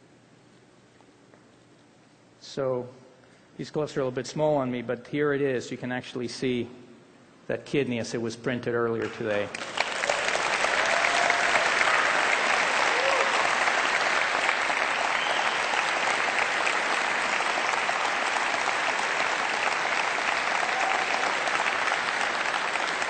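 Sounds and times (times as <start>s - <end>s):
audience applauding: 9.0s - 23.0s.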